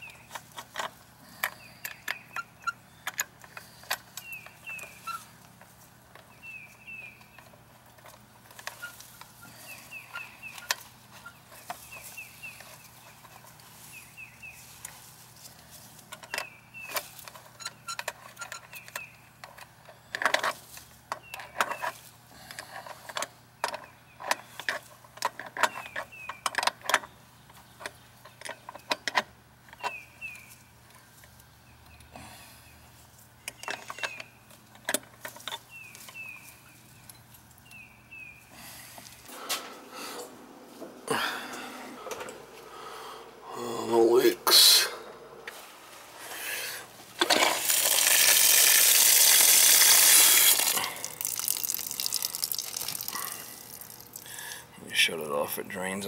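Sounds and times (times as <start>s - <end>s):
bird chirping: 1.5s - 5.4s, 6.2s - 7.6s, 8.6s - 14.9s, 16.2s - 19.3s, 25.6s - 29.1s, 29.7s - 34.5s, 35.5s - 38.6s.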